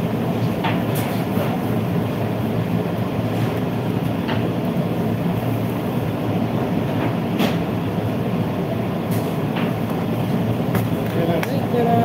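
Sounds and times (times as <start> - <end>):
extractor fan droning: 0.0 - 12.0.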